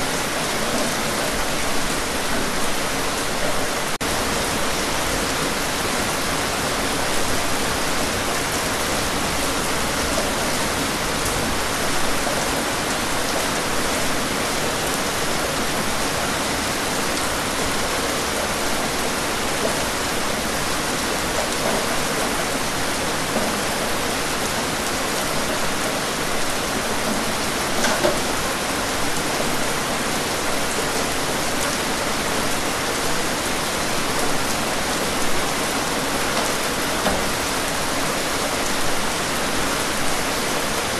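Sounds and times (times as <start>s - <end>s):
loud raindrops: 0.0s - 40.9s
steady rain: 0.0s - 40.9s.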